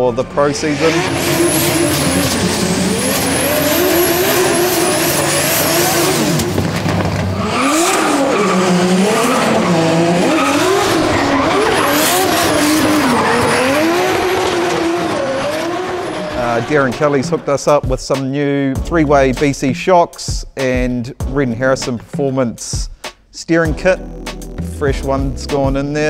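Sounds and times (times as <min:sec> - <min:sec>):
car engine revving: 0:00.0 - 0:17.9
tyre squeal: 0:00.5 - 0:06.6, 0:07.4 - 0:16.4.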